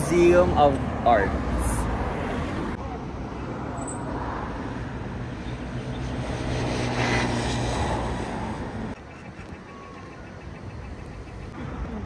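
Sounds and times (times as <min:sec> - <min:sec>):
road vehicle engine and tyre rumble: 0:00.0 - 0:12.0.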